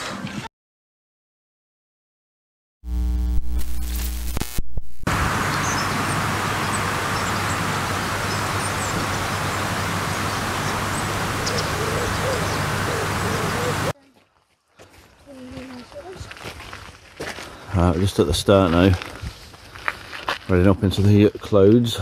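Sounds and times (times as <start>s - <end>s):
low droning: 2.8s - 13.9s
rushing outdoor noise: 5.1s - 14.0s.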